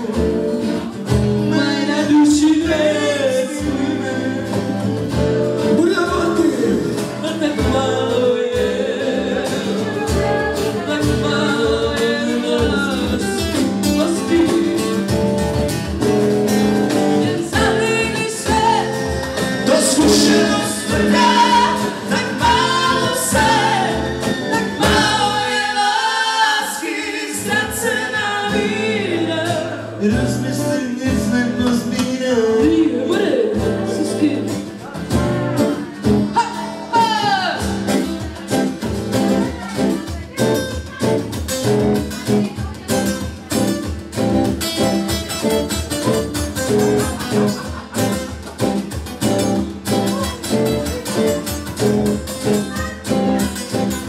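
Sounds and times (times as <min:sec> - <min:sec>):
person singing: 0:00.0 - 0:15.4, 0:16.9 - 0:41.6
acoustic guitars strumming: 0:00.0 - 0:54.0.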